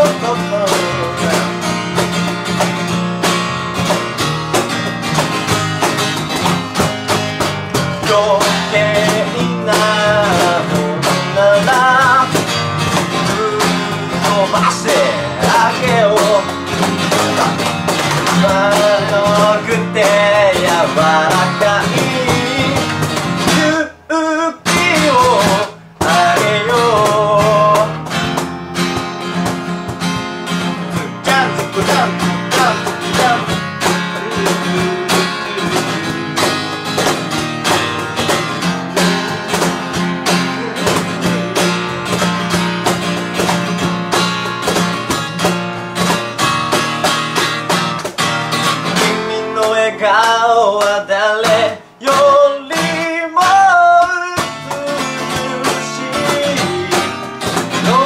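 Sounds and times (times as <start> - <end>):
person singing: 0.0 - 2.2, 7.7 - 28.2, 30.7 - 37.2, 39.5 - 42.9, 48.8 - 58.0
drums: 0.0 - 24.0, 24.6 - 58.0
electric bass: 0.0 - 47.0
strummed acoustic guitar: 0.0 - 58.0.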